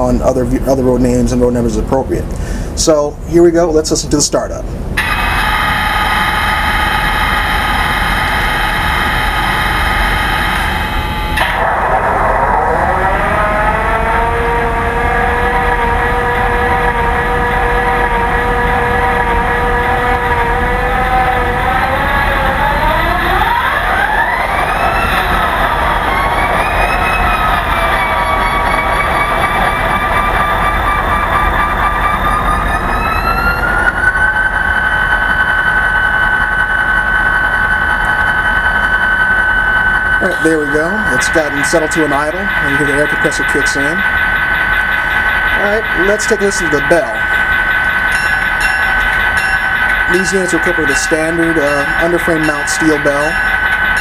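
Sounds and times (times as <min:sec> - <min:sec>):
high whine rising in pitch: 0:00.0 - 0:54.0
diesel engine through small speaker: 0:11.4 - 0:34.6, 0:40.2 - 0:48.2, 0:50.0 - 0:54.0.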